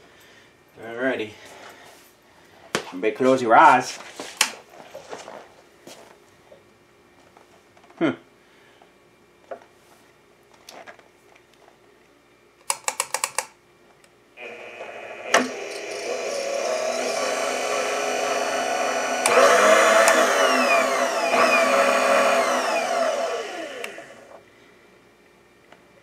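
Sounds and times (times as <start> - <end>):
electric feed motor whining: 14.4 - 24.4.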